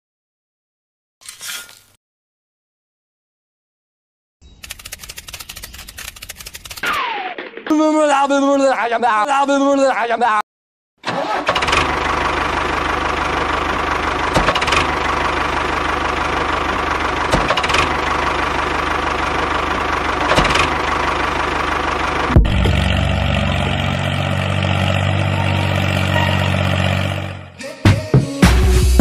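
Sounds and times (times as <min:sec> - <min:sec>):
tractor engine running: 0:04.6 - 0:06.8, 0:11.0 - 0:27.6
smooth engine hum: 0:11.6 - 0:27.6.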